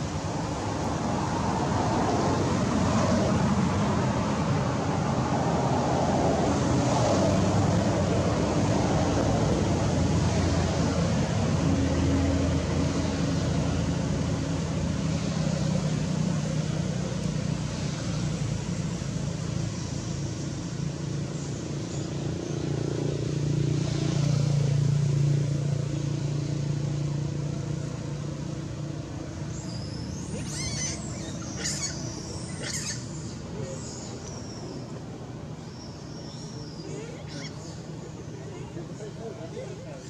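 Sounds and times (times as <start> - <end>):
vehicle engine humming: 0.0 - 40.0
short high squeaking calls: 29.6 - 34.8, 36.7 - 37.8.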